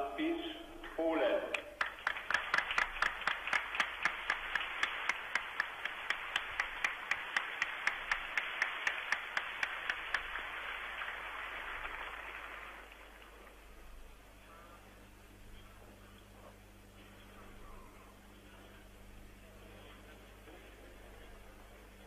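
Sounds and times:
sharp regular claps: 0.8s - 13.4s
crowd applauding: 1.5s - 13.6s.

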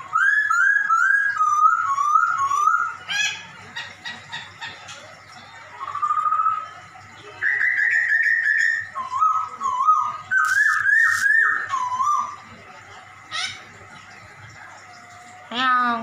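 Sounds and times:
bird singing whistled notes: 0.0s - 3.4s, 5.8s - 12.5s.

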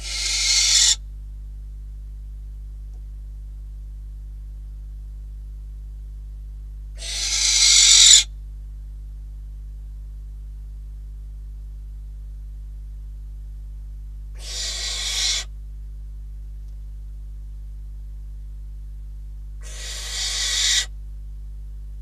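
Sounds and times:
barn owl hissing screeches: 0.0s - 1.0s, 7.0s - 8.3s, 14.4s - 15.5s, 19.6s - 20.9s.

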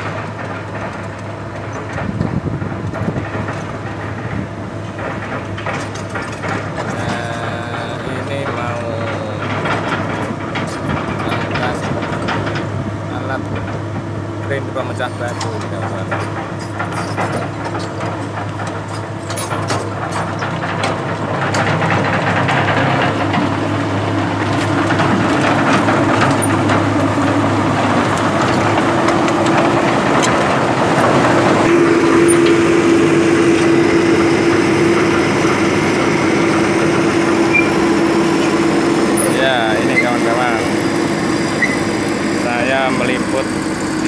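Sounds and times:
excavator diesel engine running: 0.0s - 44.0s
steady droning tone: 26.9s - 44.0s.

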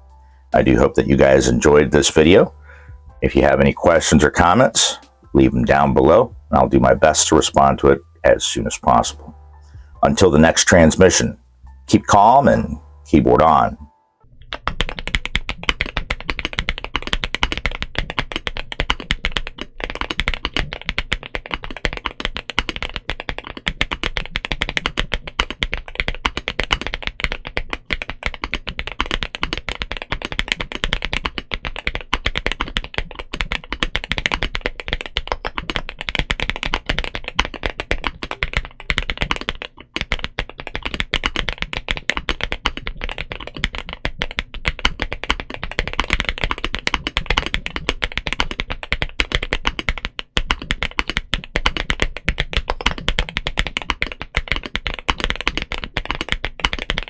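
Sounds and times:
fast typing on mechanical keyboard: 14.4s - 57.0s.

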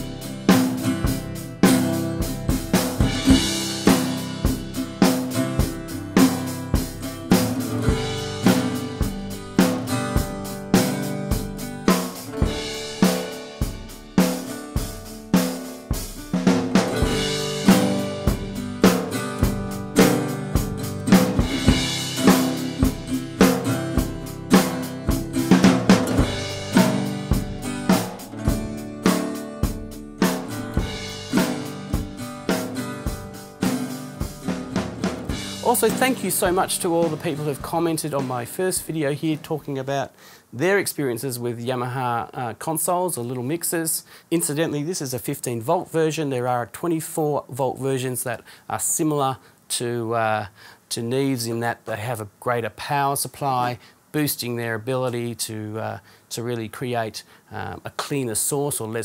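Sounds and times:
acoustic guitar strumming chords: 0.0s - 39.7s
drum kit steady beat: 0.0s - 39.8s.

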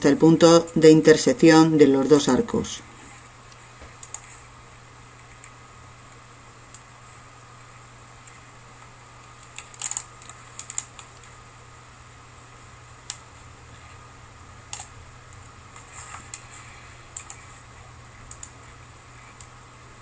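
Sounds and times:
steady low hum: 0.0s - 20.0s
computer control clicks: 18.3s - 18.6s.

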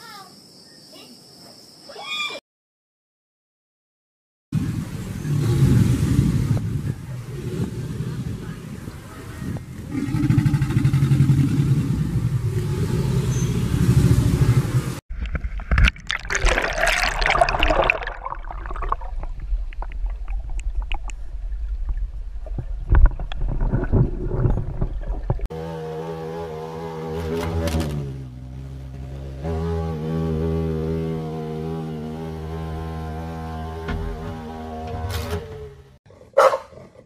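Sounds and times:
alligator growl: 9.8s - 13.2s
water gurgling and sloshing: 15.1s - 25.5s
hornet wing buzz: 25.6s - 35.5s.

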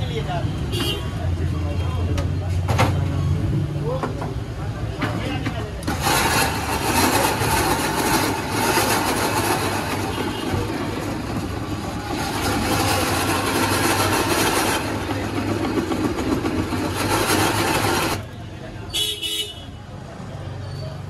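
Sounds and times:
ice-shaving machine motor hum: 5.8s - 18.2s
blade scraping ice: 5.8s - 18.3s.

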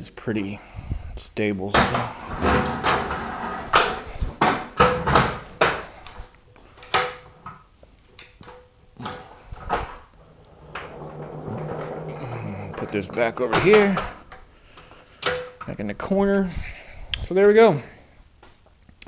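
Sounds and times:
metal floor jack clanking on concrete: 8.5s - 15.7s.

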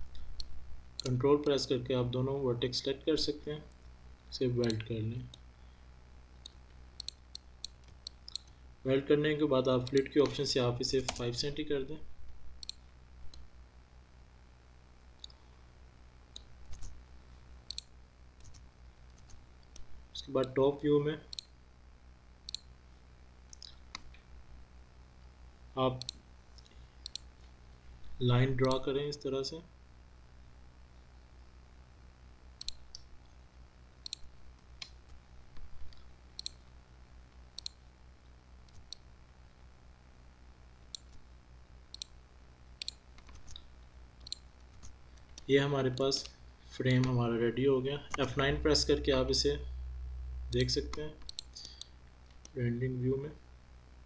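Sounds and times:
computer mouse clicks: 0.0s - 1.6s, 4.6s - 5.4s, 6.4s - 8.6s, 9.8s - 10.4s, 12.6s - 13.5s, 17.7s - 20.6s, 22.5s - 22.7s, 26.0s - 27.3s, 28.6s - 28.8s, 32.6s - 33.1s, 34.0s - 35.2s, 35.9s - 36.7s, 37.6s - 37.8s, 38.6s - 39.1s, 40.9s - 41.2s, 41.9s - 42.2s, 42.8s - 46.3s, 50.5s - 52.6s
faint low hum: 0.0s - 54.0s
mouse buttons clicking: 6.4s - 8.6s, 17.7s - 18.6s, 32.6s - 33.0s, 37.6s - 37.8s, 41.9s - 42.1s, 42.8s - 43.6s, 50.5s - 51.9s.

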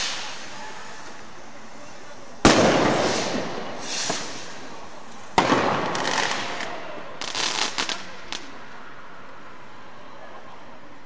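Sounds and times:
crackling firework pops: 0.0s - 1.3s, 2.4s - 8.6s
firework bang: 2.4s - 8.4s.

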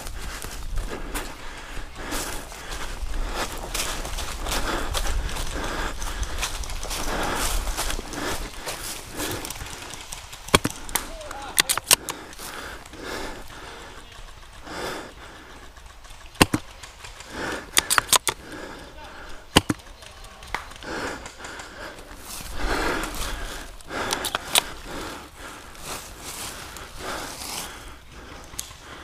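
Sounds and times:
airsoft guns firing clicks: 9.2s - 12.7s, 16.2s - 18.5s, 19.5s - 22.0s, 23.9s - 24.8s.

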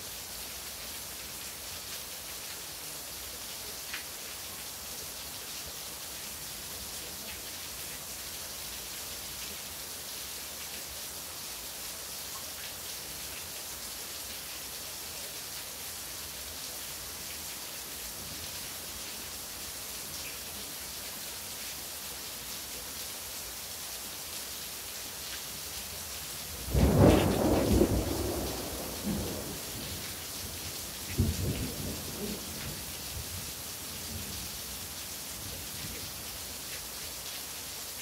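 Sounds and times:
rain falling: 0.0s - 38.0s
thunder clap and rumble: 26.7s - 29.7s.

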